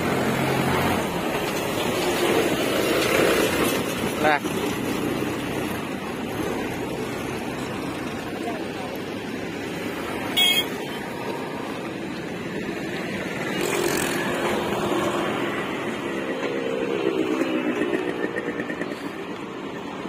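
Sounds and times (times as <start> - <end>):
passing road vehicles: 0.0 - 20.0.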